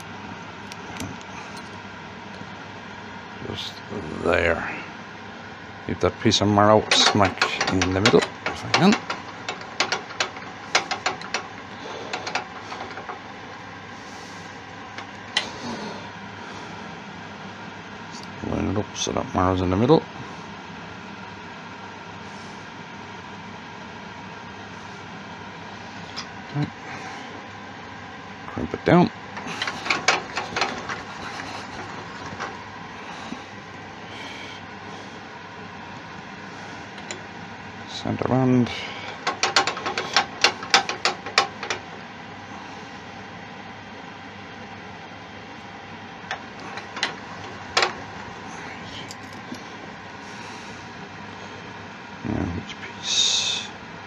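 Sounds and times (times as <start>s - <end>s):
steady background noise: 0.0s - 54.0s
small metal parts clicking: 6.9s - 13.2s, 29.4s - 32.6s, 39.1s - 41.8s.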